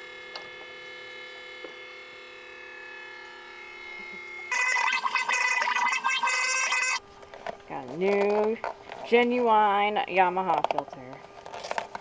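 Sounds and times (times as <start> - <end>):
electric pump running unevenly: 0.0 - 12.0.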